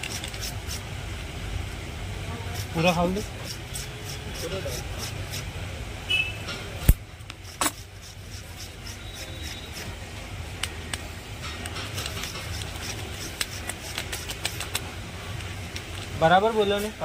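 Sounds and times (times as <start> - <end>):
copper wire being twisted: 0.0 - 0.8, 10.6 - 16.2.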